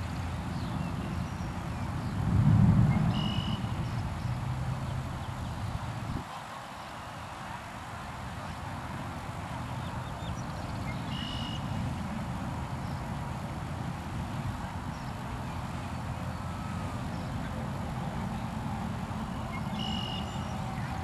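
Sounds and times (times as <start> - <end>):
low outdoor rumble: 0.0 - 6.2.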